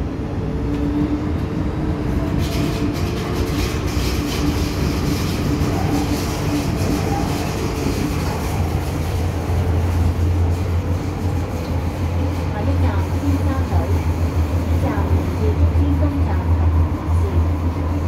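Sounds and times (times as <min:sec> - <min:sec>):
steady train hum: 0:00.0 - 0:18.0
train wheels rumbling: 0:00.0 - 0:18.0.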